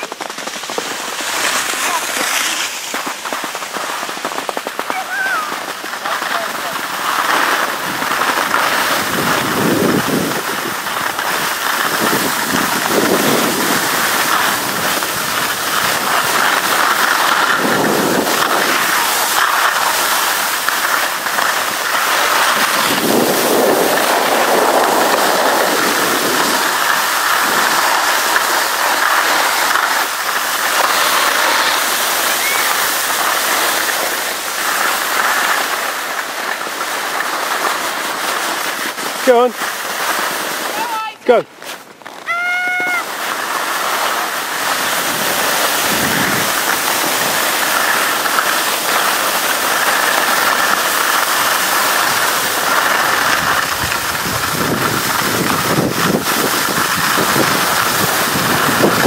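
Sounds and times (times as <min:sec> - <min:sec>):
skis scraping over packed snow: 0:00.0 - 0:59.0
wind on microphone: 0:07.8 - 0:20.7, 0:21.7 - 0:30.0, 0:44.6 - 0:47.9, 0:51.8 - 0:59.0.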